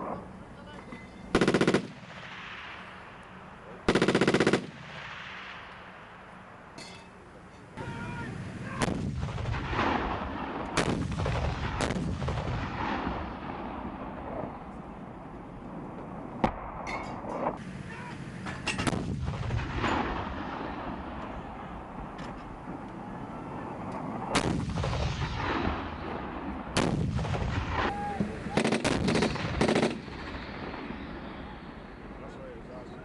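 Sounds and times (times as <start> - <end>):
machine-gun bursts: 1.4 - 1.9, 3.9 - 4.7, 28.6 - 30.0
sharp gunshot reports: 8.7 - 13.8, 24.3 - 31.6.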